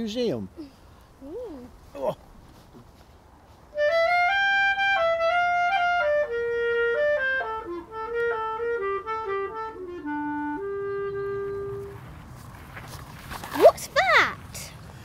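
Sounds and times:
solo instrument melody: 0:03.8 - 0:12.2.

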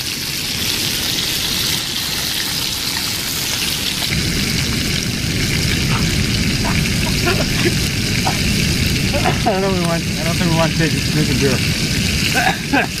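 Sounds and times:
fish sizzling in a frying pan: 0:00.0 - 0:13.0
low steady rumble: 0:04.0 - 0:12.9.

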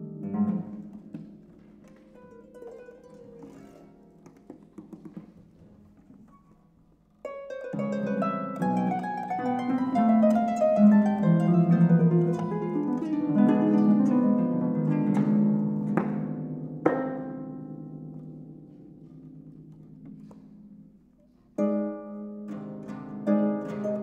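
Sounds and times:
harps playing: 0:00.0 - 0:04.2, 0:07.2 - 0:18.7, 0:21.6 - 0:24.0.

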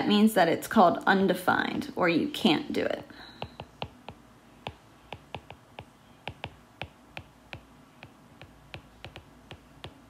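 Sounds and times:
stylus tapping on glass screen: 0:03.4 - 0:10.0.

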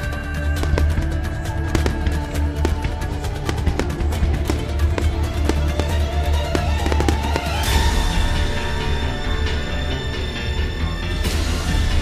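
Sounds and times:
fireworks bursting: 0:00.6 - 0:09.2.

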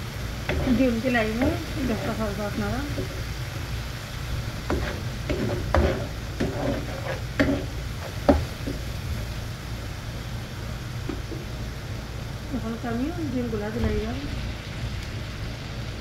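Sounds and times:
spoon scraping sizzling paste: 0:00.4 - 0:03.3, 0:04.4 - 0:08.8.

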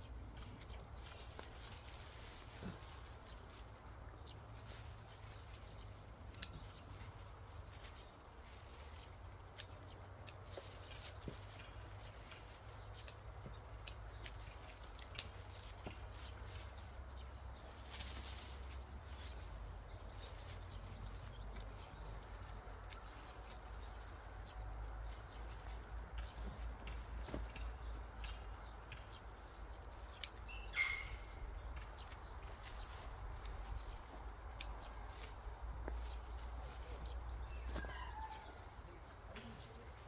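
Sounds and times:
rustling of plants: 0:00.0 - 0:40.0
bird call: 0:30.6 - 0:31.4.

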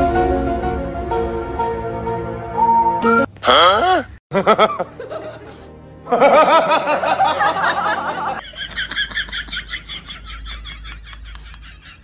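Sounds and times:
person laughing: 0:03.5 - 0:12.0.

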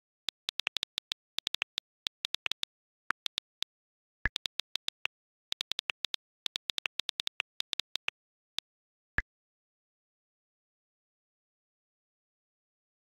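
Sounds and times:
phone keyboard clicks: 0:00.0 - 0:03.7, 0:04.3 - 0:08.1.

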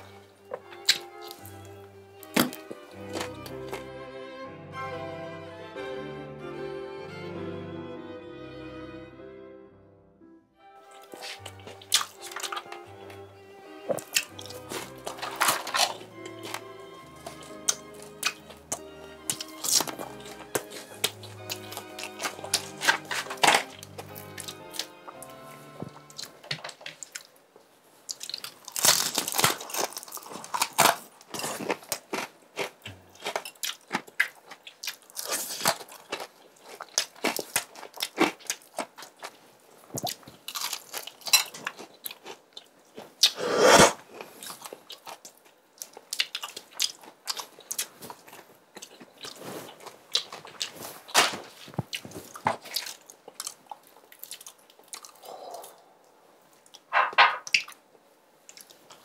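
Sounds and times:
fried chicken crunching: 0:02.2 - 0:03.8, 0:11.0 - 0:12.8, 0:13.8 - 0:25.3, 0:28.1 - 0:39.4, 0:40.0 - 0:55.4.

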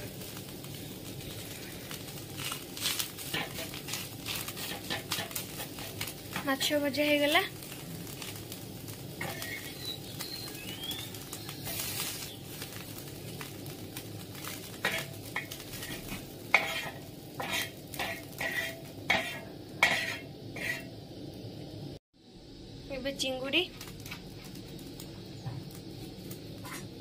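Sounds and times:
hot oil sizzling: 0:00.0 - 0:27.0
metal spatula scraping a wok: 0:01.9 - 0:06.5, 0:09.2 - 0:09.8, 0:11.6 - 0:12.3, 0:14.4 - 0:21.0, 0:26.6 - 0:27.0.

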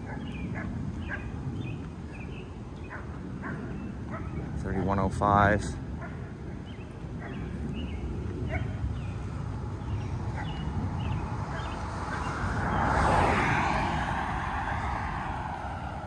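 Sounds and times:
car passing by: 0:09.3 - 0:16.0.

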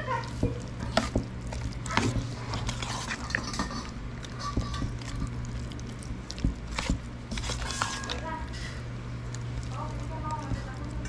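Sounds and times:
spoon scraping steel bowl: 0:02.0 - 0:05.3, 0:07.3 - 0:08.2.

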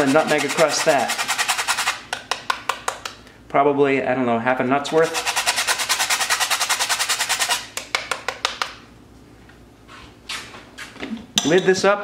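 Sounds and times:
nutmeg grating on metal grater: 0:00.0 - 0:02.0, 0:04.9 - 0:07.8.

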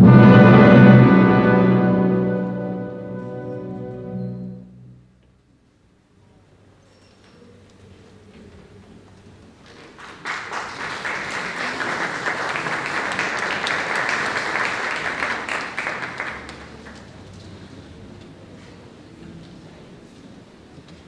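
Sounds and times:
audience applause: 0:09.8 - 0:17.3.

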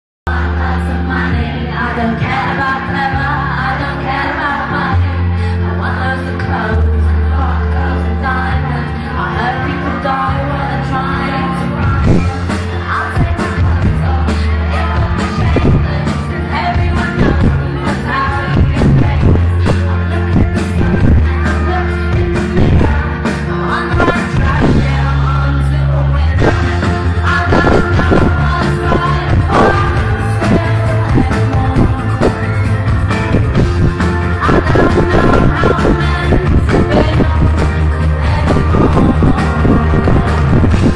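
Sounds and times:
heavy bass line: 0:00.3 - 0:40.9
live pop band playing: 0:00.3 - 0:40.9
woman singing into a microphone: 0:00.3 - 0:40.9
steady drum beat: 0:12.0 - 0:25.0, 0:26.4 - 0:40.9.

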